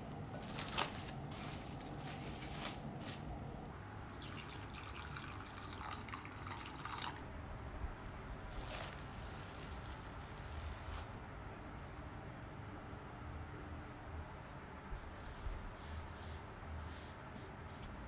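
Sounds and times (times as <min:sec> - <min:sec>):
plastic wrap crackling: 0:00.2 - 0:03.2, 0:08.4 - 0:11.2.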